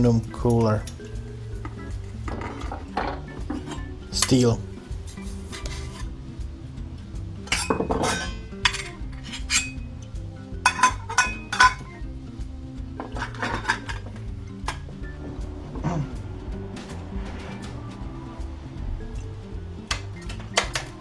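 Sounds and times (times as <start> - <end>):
music playing: 0.0 - 21.0
metal plate clanking on wood: 2.2 - 3.9, 7.5 - 9.8, 13.0 - 14.9.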